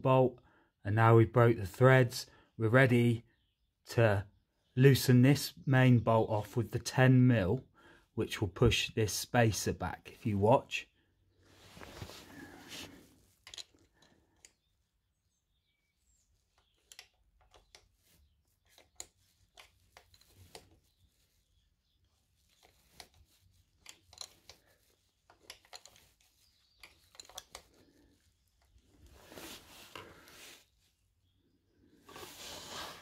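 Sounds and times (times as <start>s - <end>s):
spanner clicking on bolt: 23.8s - 24.6s, 26.8s - 27.6s.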